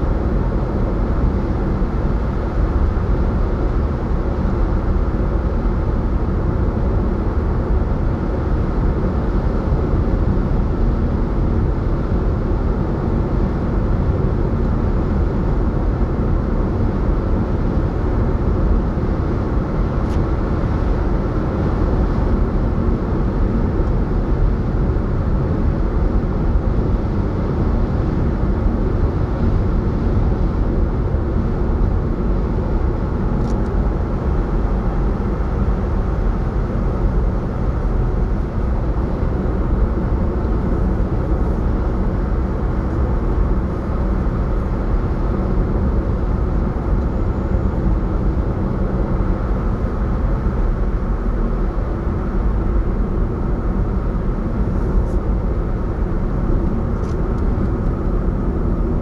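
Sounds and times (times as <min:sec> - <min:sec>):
car driving on road: 0:00.0 - 0:59.0.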